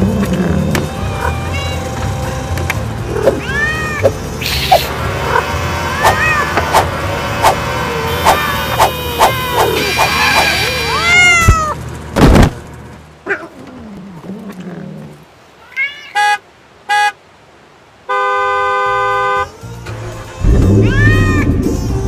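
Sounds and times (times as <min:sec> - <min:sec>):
cat meowing: 0:01.2 - 0:01.8, 0:03.1 - 0:04.9, 0:05.9 - 0:06.6, 0:08.0 - 0:11.8, 0:15.6 - 0:16.2, 0:20.7 - 0:21.6
car horn honking: 0:08.0 - 0:11.1, 0:16.1 - 0:17.2, 0:18.1 - 0:19.5
loud thump: 0:12.2 - 0:12.6.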